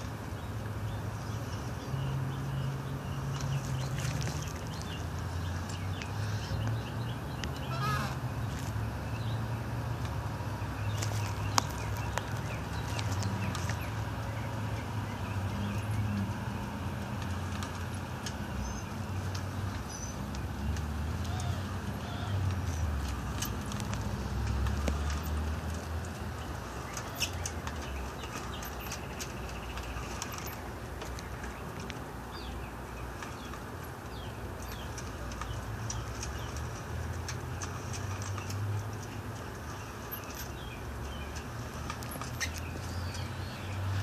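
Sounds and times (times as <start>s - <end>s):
small clicks and scratches: 22.4s - 32.1s, 33.2s - 43.4s.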